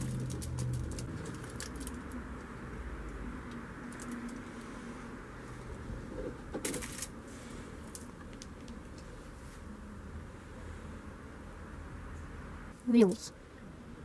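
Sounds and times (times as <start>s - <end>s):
plastic bag and foil crinkling: 0.0s - 2.2s, 6.6s - 7.2s.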